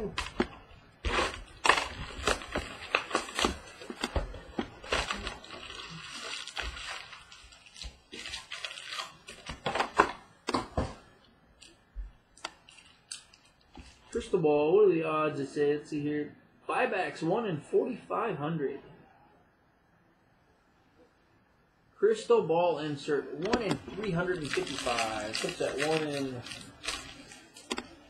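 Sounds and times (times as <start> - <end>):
cardboard packs clicking and rustling: 0.0 - 11.0, 23.5 - 28.0
plastic wrapper crinkling: 0.0 - 11.0, 11.6 - 14.1, 23.4 - 28.0.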